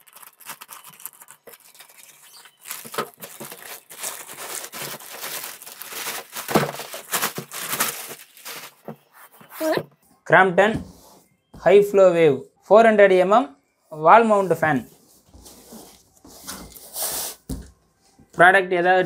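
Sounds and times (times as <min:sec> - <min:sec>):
scissors cutting plastic bag: 0:00.0 - 0:08.8
plastic bag crinkling and rustling: 0:00.0 - 0:09.1.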